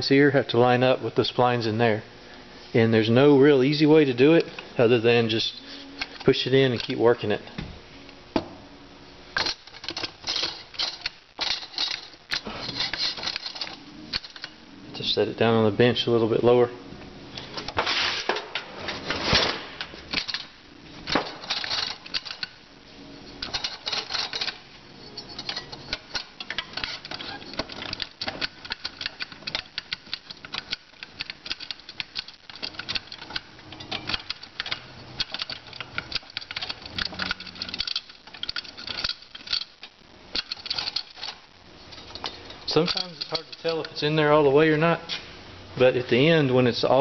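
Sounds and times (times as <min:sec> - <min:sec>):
metallic clicking and clattering: 0:09.4 - 0:14.6, 0:19.3 - 0:22.6, 0:23.3 - 0:44.0.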